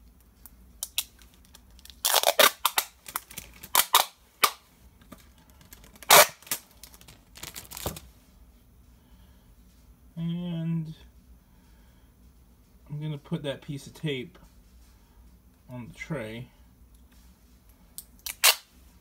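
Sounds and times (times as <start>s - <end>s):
adhesive tape ripping: 0.8s - 4.6s, 5.7s - 8.0s, 18.2s - 18.7s.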